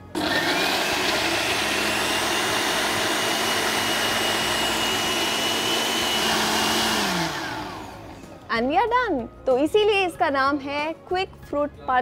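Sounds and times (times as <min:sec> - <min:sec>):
blender motor whining: 0:00.0 - 0:08.3.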